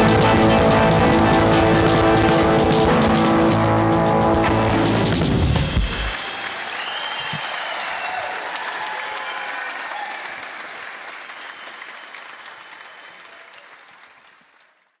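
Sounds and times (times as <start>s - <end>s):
people cheering: 5.6s - 14.5s
audience applause: 5.7s - 15.0s.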